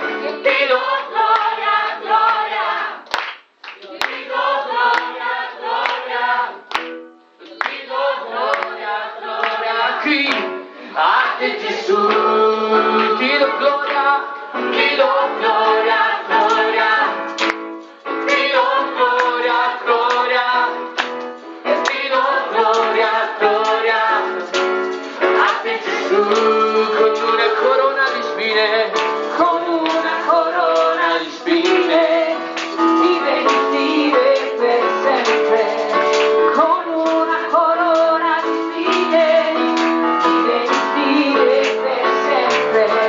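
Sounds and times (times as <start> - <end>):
congregation singing: 0.0 - 3.1, 3.8 - 6.8, 7.4 - 43.0
woman singing lead: 25.4 - 43.0.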